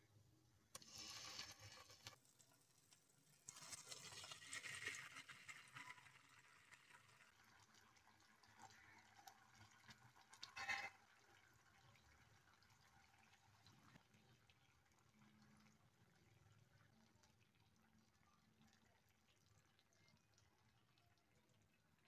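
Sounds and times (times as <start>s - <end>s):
sauce poured into frying pan: 0.8s - 11.5s.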